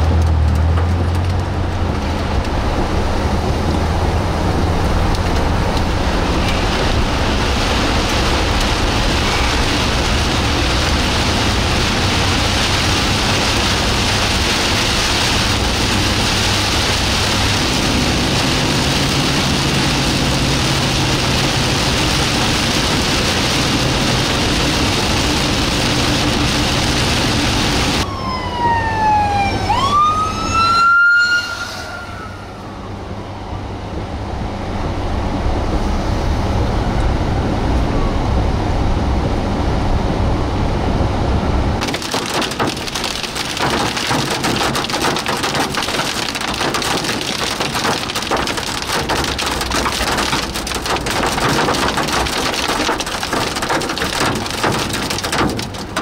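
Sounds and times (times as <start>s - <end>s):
hail pelting car: 0.0s - 28.0s, 41.8s - 56.0s
rain on car windshield: 0.0s - 28.0s, 41.8s - 56.0s
engine and road rumble: 0.0s - 56.0s
emergency vehicle siren: 27.3s - 34.4s.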